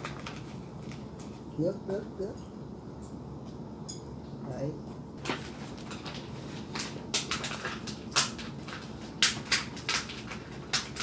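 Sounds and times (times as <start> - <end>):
rice paper crinkling: 0.0 - 1.5, 5.2 - 11.0.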